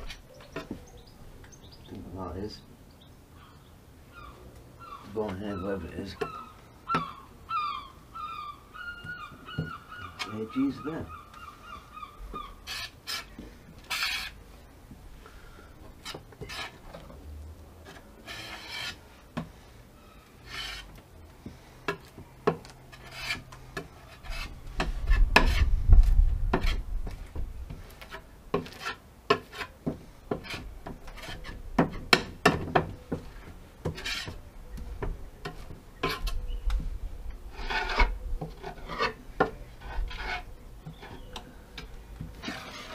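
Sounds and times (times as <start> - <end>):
spreader scraping adhesive on wood: 42.4 - 42.9.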